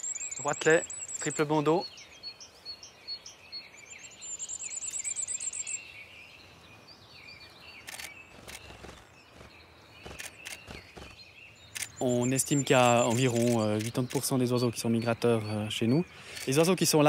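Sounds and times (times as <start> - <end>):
bird singing very high notes: 0.0 - 17.0
small birds calling: 0.0 - 17.0
camera shutter clicks: 7.8 - 9.0, 10.1 - 11.2, 11.8 - 12.0, 13.1 - 14.0.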